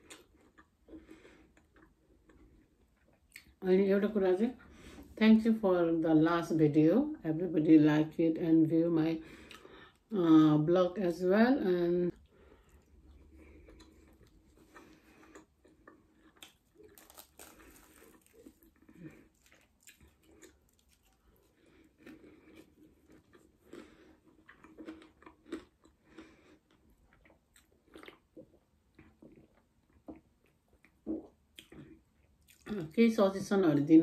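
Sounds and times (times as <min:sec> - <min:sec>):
person chewing crunchy food: 0:00.0 - 0:03.6, 0:12.2 - 0:32.9.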